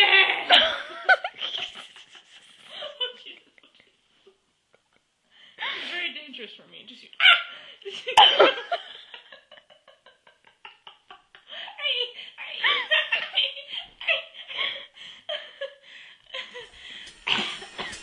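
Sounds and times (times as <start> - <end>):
people laughing: 0.4 - 4.0.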